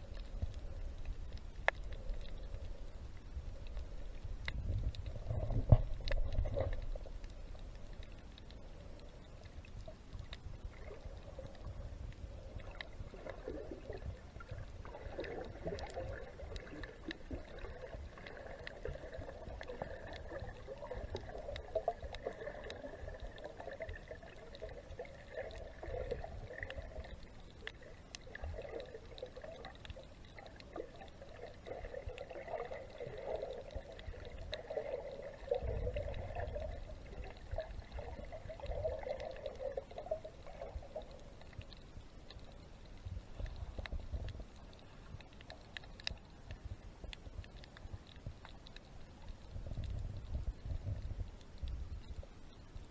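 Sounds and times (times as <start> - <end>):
low rumble: 0.0 - 31.2, 49.3 - 52.3
faint underwater clicks: 0.0 - 52.9
underwater gurgling and sloshing: 0.0 - 52.9.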